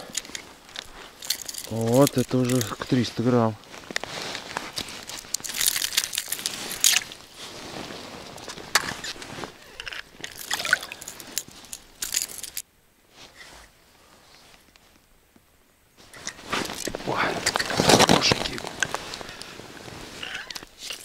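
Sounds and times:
wet crunching and slushy sloshing: 10.3 - 11.5.

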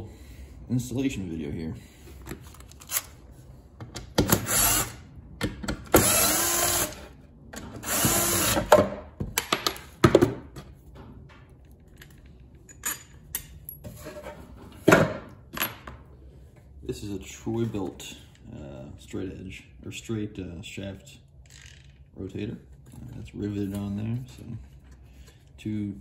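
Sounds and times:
power screwdriver running: 4.4 - 5.0, 6.0 - 7.0, 7.8 - 8.7
clicks and knocks of metal parts: 8.7 - 13.9, 21.4 - 22.2.

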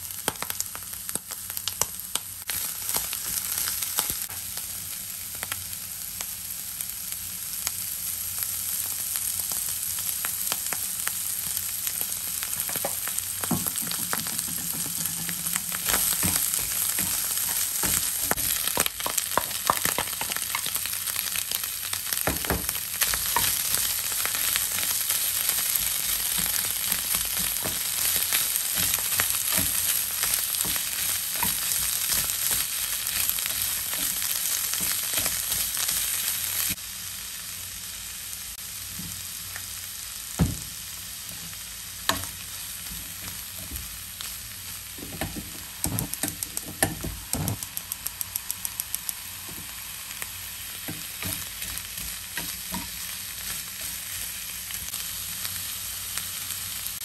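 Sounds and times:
food sizzling in a frying pan: 0.0 - 57.0
small ticks: 47.6 - 49.3.

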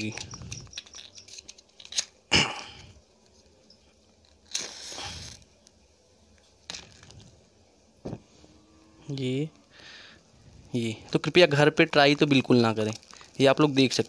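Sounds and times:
soft rush of fire igniting: 4.2 - 5.8, 9.6 - 14.0.

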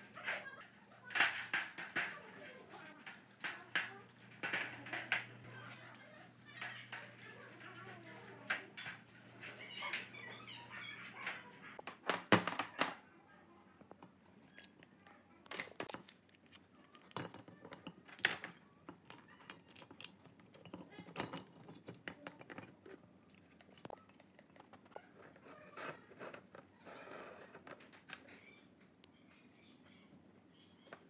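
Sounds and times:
light clicks and scrapes: 0.0 - 11.8, 13.8 - 30.1
metal parts clinking and knocking: 16.9 - 22.7.

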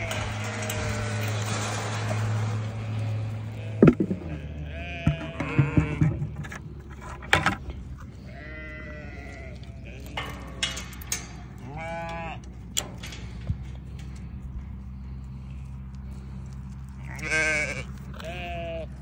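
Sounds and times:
sheep bleating: 0.0 - 6.4, 8.2 - 10.6, 11.6 - 12.5, 17.0 - 19.0.

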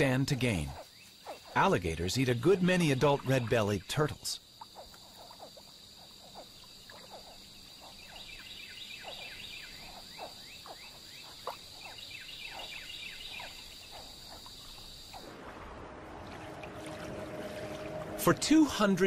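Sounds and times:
soft rushing wash: 15.2 - 19.0.

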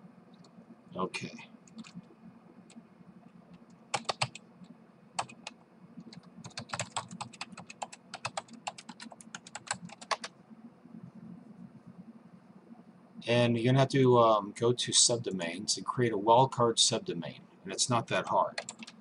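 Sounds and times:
computer keyboard typing: 1.6 - 2.1, 3.6 - 4.4, 5.2 - 10.3, 18.5 - 19.0.

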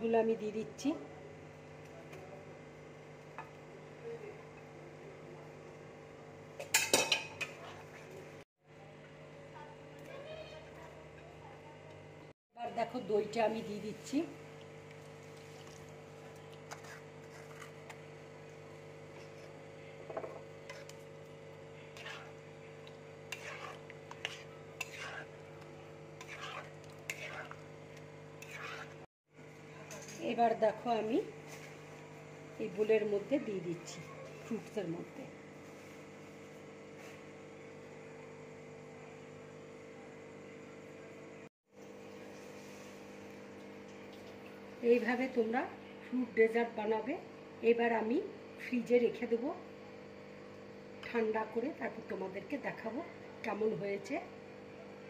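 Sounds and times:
electrical hum: 7.2 - 55.0
metal spatula scraping pan: 21.9 - 22.4, 23.3 - 25.6, 26.2 - 27.7, 28.4 - 29.1.

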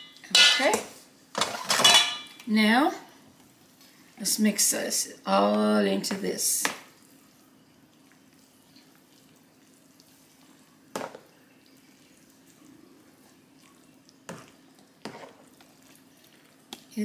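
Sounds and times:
faint steady hum: 0.0 - 17.0
metal spoon stirring wet mixture: 11.6 - 17.0.

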